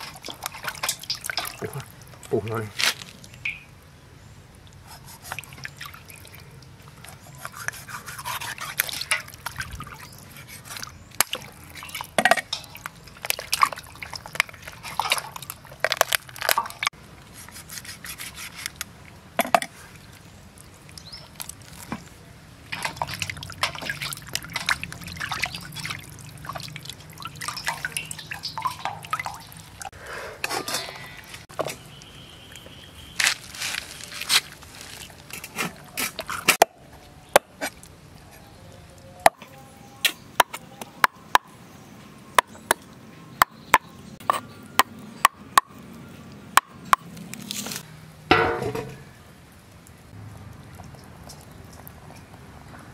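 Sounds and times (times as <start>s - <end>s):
water splashing in steel basin: 0.0s - 2.4s, 8.6s - 16.9s, 22.6s - 29.9s.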